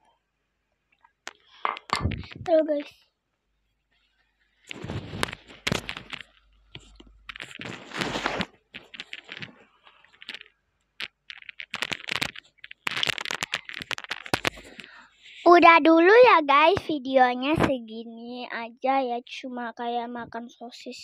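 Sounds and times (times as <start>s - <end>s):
microphone cable handling: 1.3s - 2.7s, 4.6s - 15.1s
tissue wiped over microphone: 4.6s - 6.2s, 7.3s - 10.3s.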